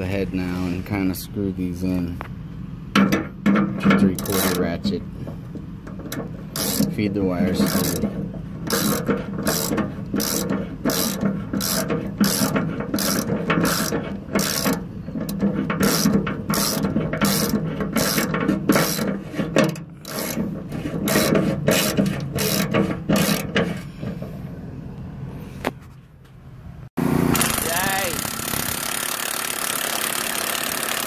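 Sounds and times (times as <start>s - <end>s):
ratchet wrench clicking: 5.9s - 6.9s, 7.6s - 19.1s, 19.7s - 20.4s, 27.4s - 31.0s.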